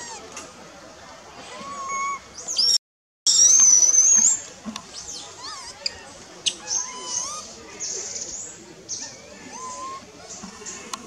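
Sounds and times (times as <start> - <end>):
young monkey squealing: 1.4 - 4.3, 5.0 - 8.2, 8.9 - 10.1.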